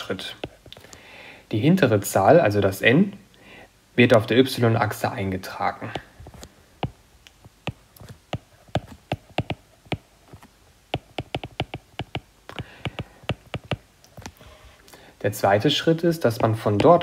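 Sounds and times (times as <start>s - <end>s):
stylus tapping on glass screen: 7.6s - 13.9s, 16.4s - 17.0s.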